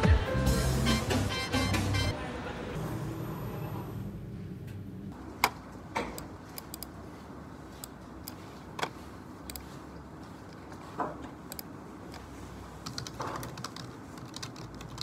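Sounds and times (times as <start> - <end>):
keyboard and mouse clicks: 5.4 - 7.0, 7.8 - 9.8, 10.5 - 15.0.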